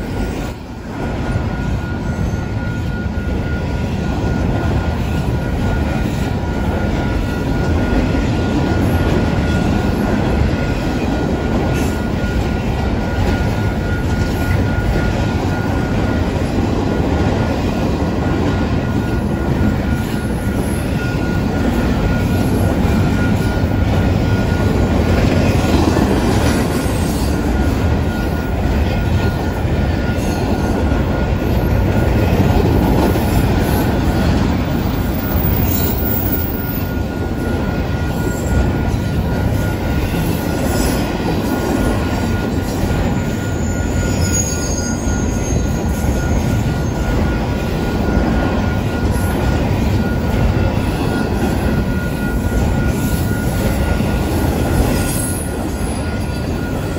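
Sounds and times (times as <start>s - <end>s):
train wheels rumbling and clattering: 0.0s - 56.9s
high-pitched squeal: 18.3s - 56.9s.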